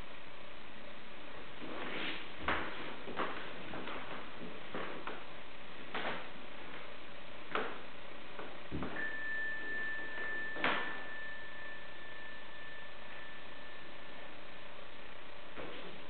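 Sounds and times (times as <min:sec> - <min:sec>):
room hiss: 0:00.0 - 0:16.0
body rustling on yoga mat: 0:01.4 - 0:07.0
thin high tone: 0:09.0 - 0:14.3.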